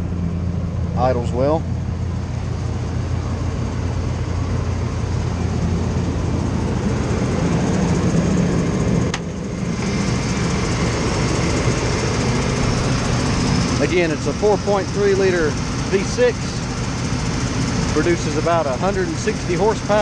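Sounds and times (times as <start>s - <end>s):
truck engine idling: 0.0s - 20.0s
hood latch click: 9.1s - 9.3s.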